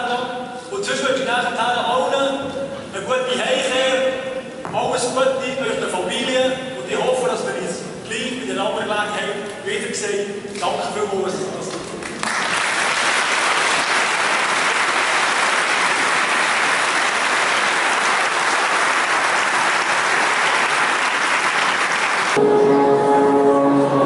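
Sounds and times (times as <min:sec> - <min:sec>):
crowd applauding: 0:12.0 - 0:22.4
music with long held notes: 0:22.4 - 0:24.0.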